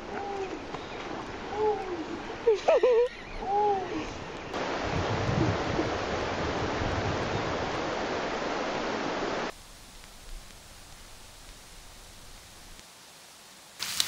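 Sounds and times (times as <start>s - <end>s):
water rushing over rocks: 4.6s - 9.5s.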